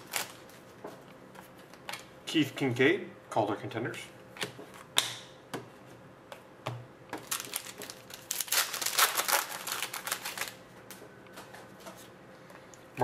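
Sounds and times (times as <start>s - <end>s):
foil wrapper crinkling: 0.0s - 0.6s, 7.2s - 10.6s.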